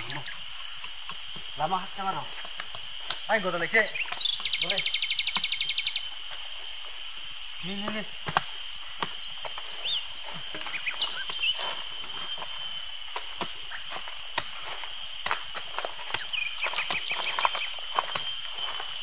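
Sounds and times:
insect drone: 0:00.0 - 0:19.0
bird chirps: 0:03.8 - 0:06.2, 0:09.0 - 0:13.0, 0:15.8 - 0:19.0
footsteps on leaf litter: 0:09.1 - 0:19.0.

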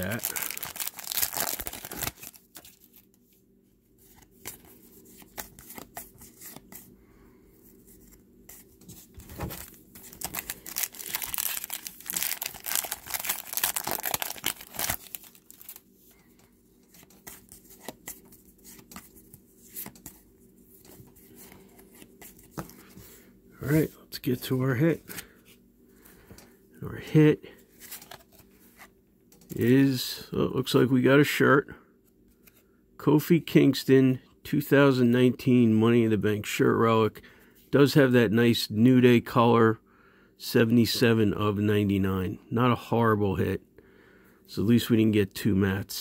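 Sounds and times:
foil wrapper crinkling and tearing: 0:00.0 - 0:02.9, 0:09.4 - 0:15.8.

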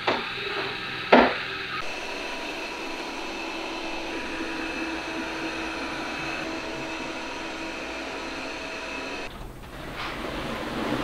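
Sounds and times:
faint steady tones: 0:00.4 - 0:09.3
robot vacuum motor whirring: 0:01.7 - 0:09.3.

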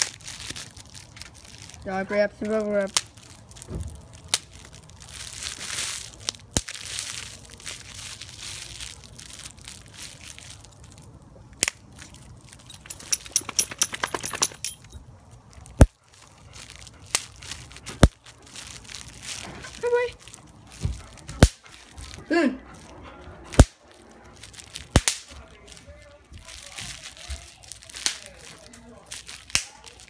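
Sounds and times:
bubble wrap pops: 0:00.0 - 0:01.5, 0:02.5 - 0:10.7, 0:16.7 - 0:19.8, 0:20.8 - 0:21.7, 0:23.5 - 0:23.8, 0:24.6 - 0:25.4, 0:26.4 - 0:30.0
bubble wrap crinkling: 0:00.0 - 0:30.0.

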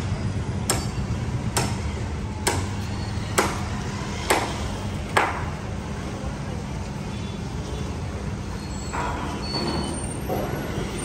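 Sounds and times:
hammering on metal: 0:00.6 - 0:05.6.

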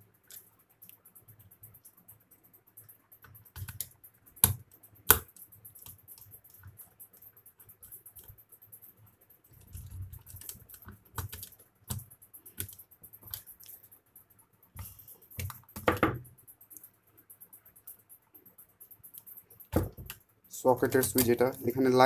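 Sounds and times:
small clicks and taps on plastic: 0:03.3 - 0:06.8, 0:14.8 - 0:16.9.

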